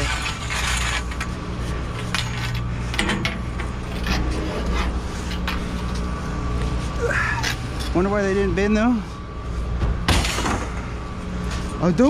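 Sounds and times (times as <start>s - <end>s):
low vehicle engine hum: 0.0s - 12.0s
metal pipes knocking and scraping: 2.0s - 6.0s.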